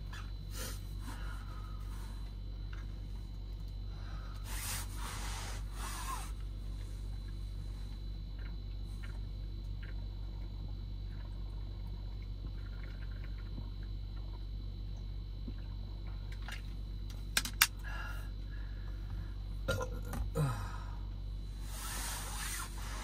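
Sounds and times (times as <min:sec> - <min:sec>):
low car cabin hum: 0:00.0 - 0:23.0
person swallowing: 0:19.7 - 0:20.6.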